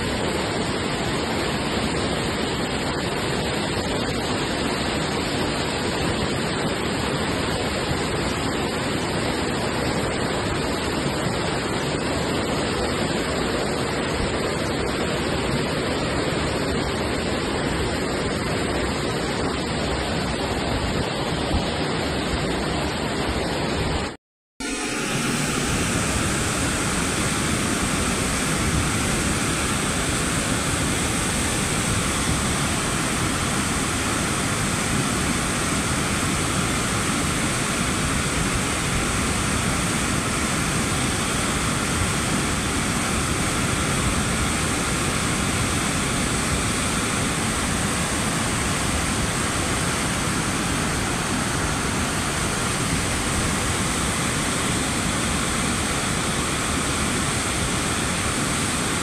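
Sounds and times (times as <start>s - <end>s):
floodwater rushing: 0.0s - 59.0s.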